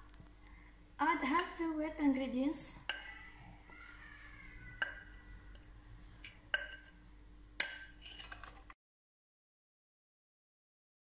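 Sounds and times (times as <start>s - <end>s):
metal spoon clinking on glass bowl: 4.8s - 7.0s, 7.6s - 8.5s.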